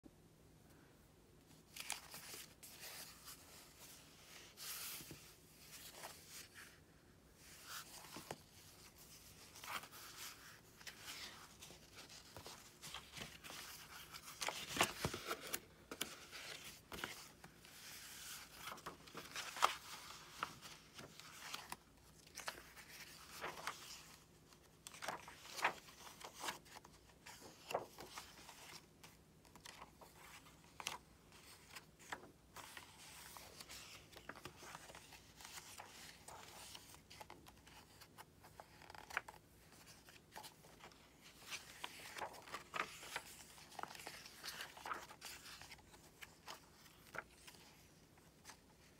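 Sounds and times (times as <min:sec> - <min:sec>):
paper pages rustling: 0:01.5 - 0:06.8, 0:07.4 - 0:48.9.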